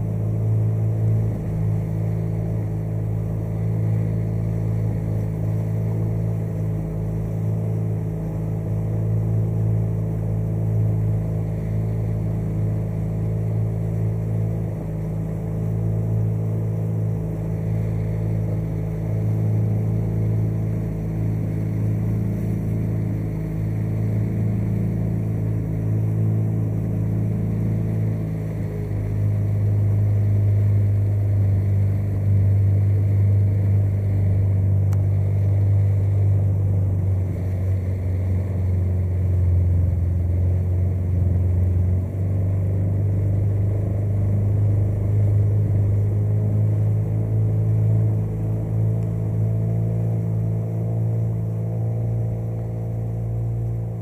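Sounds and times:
motorboat engine drone: 0:00.0 - 0:54.0.

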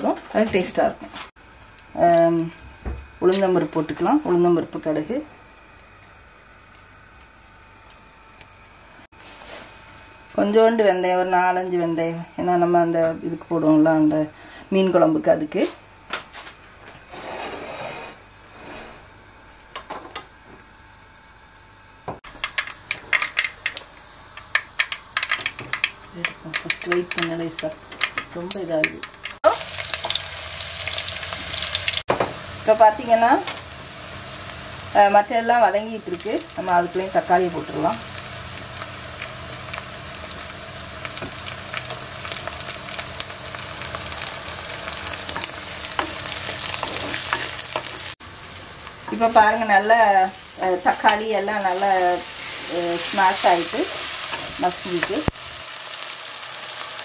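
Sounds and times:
seeds popping in hot oil: 0:22.2 - 0:32.5, 0:35.6 - 0:49.6, 0:50.4 - 0:57.0.

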